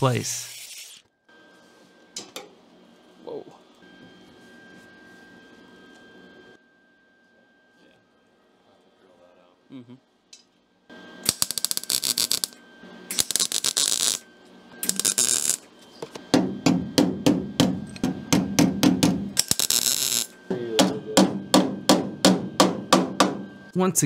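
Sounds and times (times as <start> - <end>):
welding crackle: 11.2 - 14.2, 14.8 - 15.7, 19.4 - 20.4.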